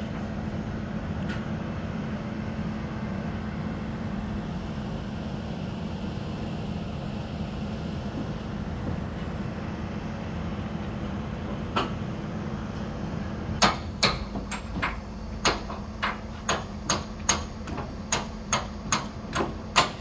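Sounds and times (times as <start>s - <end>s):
low mechanical hum: 0.0s - 20.0s
hammer striking metal: 13.6s - 20.0s.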